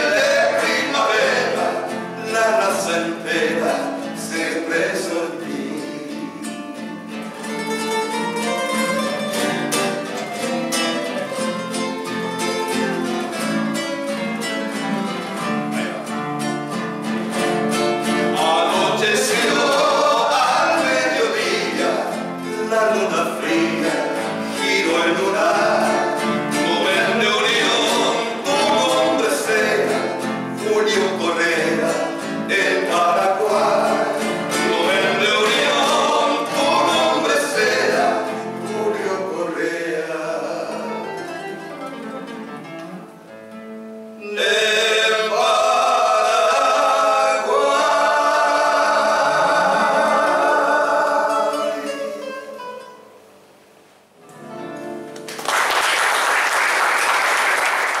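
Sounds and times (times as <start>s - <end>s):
men singing: 0.0s - 6.9s, 18.0s - 41.2s, 44.2s - 52.4s
strummed classical guitars: 0.0s - 58.0s
audience applause: 55.2s - 58.0s.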